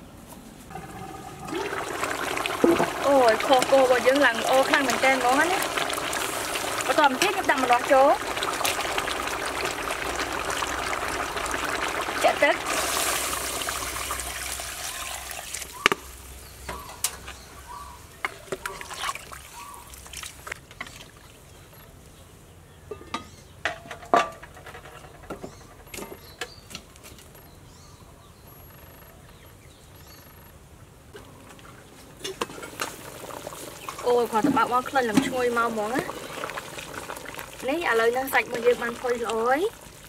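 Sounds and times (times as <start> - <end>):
water pouring into a pot: 0.7 - 16.1, 18.4 - 21.1, 32.4 - 40.0.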